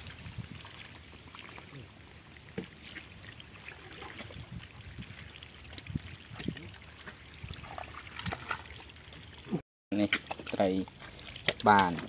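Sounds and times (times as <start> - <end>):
mud squelching and splashing: 0.0 - 12.0.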